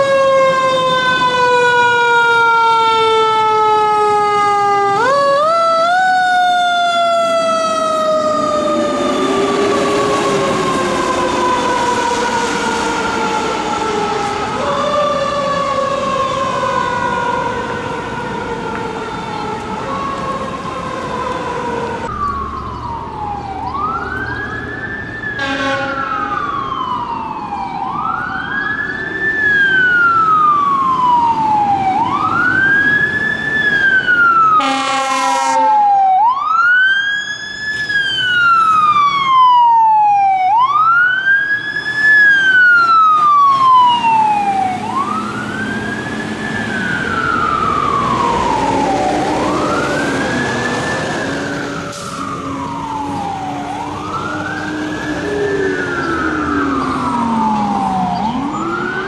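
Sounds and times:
mechanical siren wailing: 0.0 - 59.0
air horn blasts: 25.4 - 26.2, 34.6 - 35.8.

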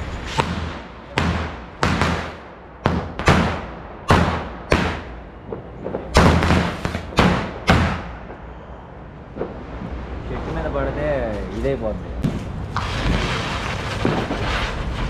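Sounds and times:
firecrackers banging: 0.0 - 8.6, 12.2 - 15.0.

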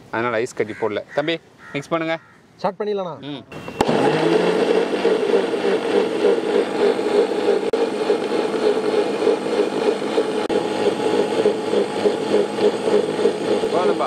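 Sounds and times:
electric mixer grinder running: 3.8 - 14.0.

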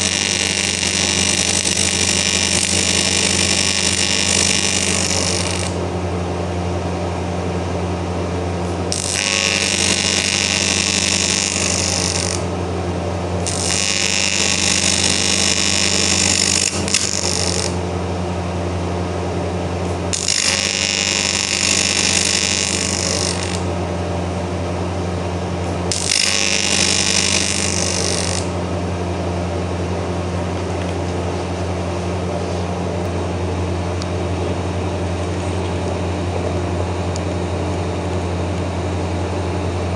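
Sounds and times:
welding arc buzzing: 0.0 - 6.2, 7.9 - 29.0
steady low hum: 0.0 - 39.9.

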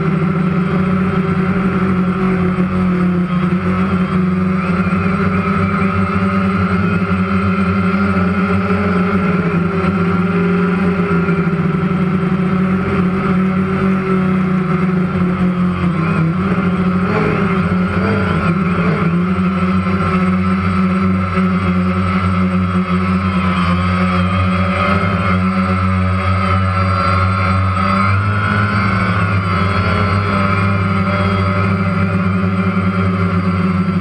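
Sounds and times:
drone motors and propellers humming: 0.0 - 34.0.

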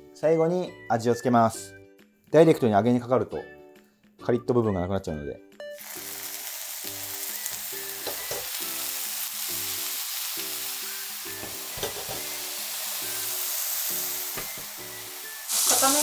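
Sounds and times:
background music with steady beat: 0.0 - 5.8, 6.8 - 16.0
liquid sizzling in frying pan: 5.8 - 16.0.

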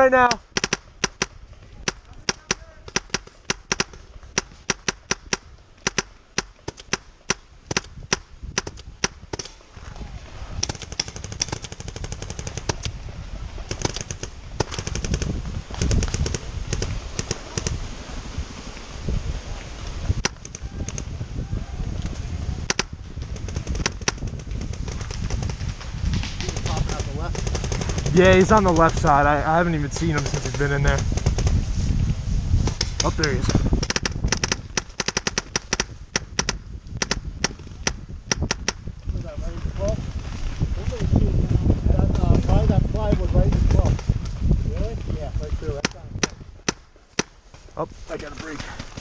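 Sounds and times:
paintball markers firing: 0.4 - 9.6, 10.6 - 12.9, 13.6 - 17.8, 22.6 - 29.2, 29.9 - 31.6, 32.6 - 38.9, 45.8 - 47.4.

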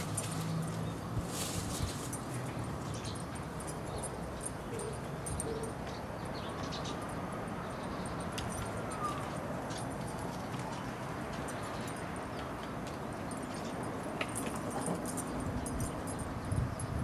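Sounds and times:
paws scuffling through dry leaves: 0.0 - 3.0.

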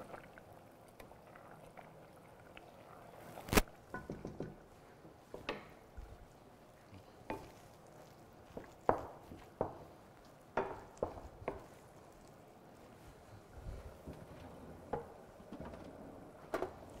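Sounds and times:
utensil knock: 4.0 - 4.6
spoon stirring in a pot: 6.8 - 15.4
light utensil taps: 8.5 - 11.8.

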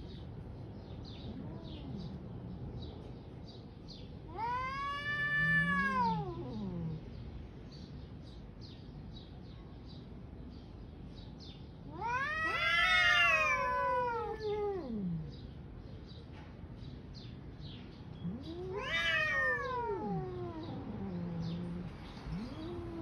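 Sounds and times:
cats yowling: 1.3 - 2.3, 4.2 - 7.0, 11.8 - 15.3, 18.2 - 23.0.

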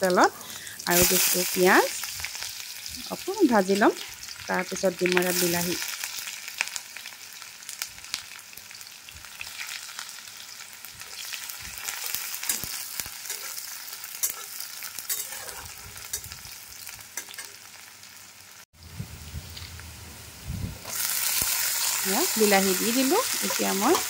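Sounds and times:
onions sizzling in hot oil: 0.0 - 24.0
metal spatula scraping a pan: 11.1 - 16.4, 17.2 - 17.6, 23.2 - 24.0.

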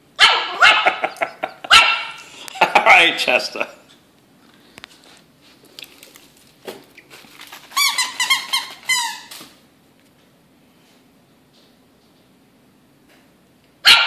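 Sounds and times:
dog toy squeaking: 7.7 - 9.4.

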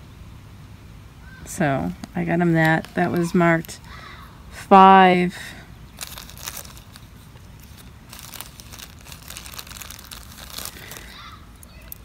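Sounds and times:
crinkling rustling handling noise: 1.4 - 4.2, 5.8 - 12.0.

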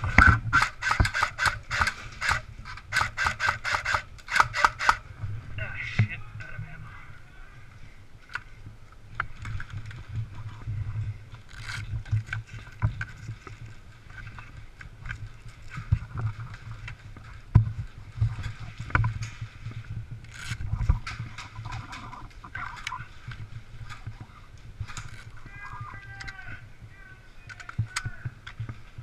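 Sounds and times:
magazine and gear clattering: 0.0 - 5.0, 24.8 - 25.4
rifle reloading clicks and knocks: 0.1 - 5.0
camera handling rumble: 8.2 - 26.5.

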